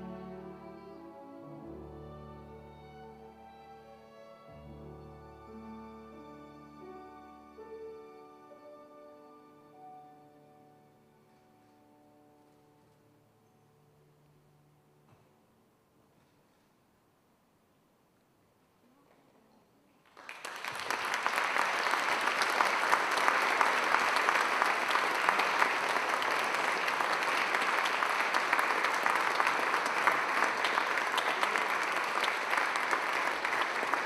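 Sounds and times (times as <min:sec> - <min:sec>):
audience applauding: 0:20.1 - 0:34.0.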